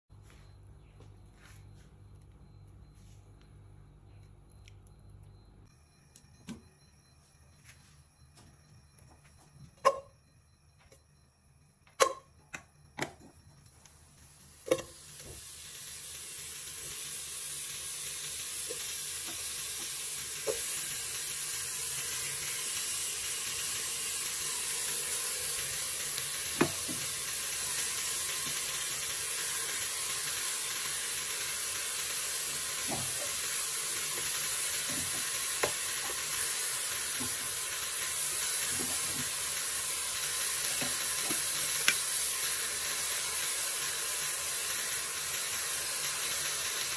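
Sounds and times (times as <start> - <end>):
pot sizzling: 11.9 - 13.2, 13.9 - 46.9.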